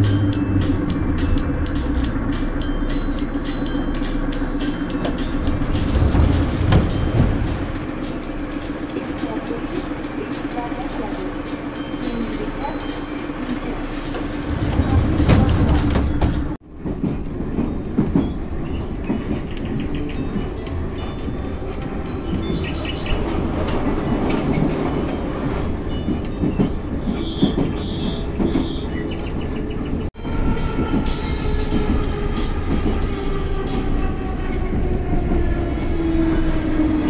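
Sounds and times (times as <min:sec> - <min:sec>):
train rumble with wheel clatter: 0:00.0 - 0:37.0.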